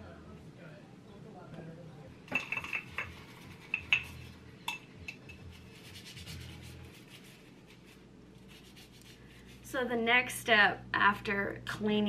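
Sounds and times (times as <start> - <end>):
glass jars clinking: 2.3 - 5.4.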